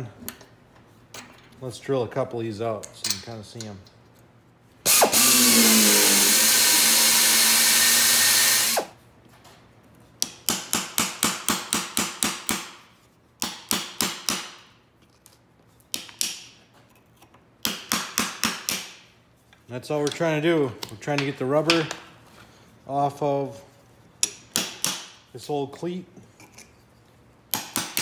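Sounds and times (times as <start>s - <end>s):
electric drill drilling steel: 4.9s - 8.9s.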